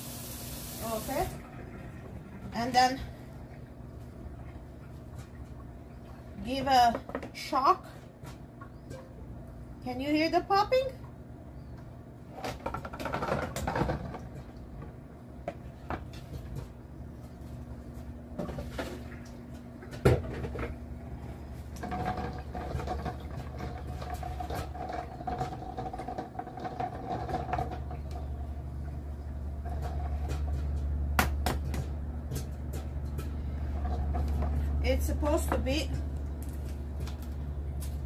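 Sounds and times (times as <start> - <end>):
microwave humming: 0.0 - 6.9, 7.5 - 38.0.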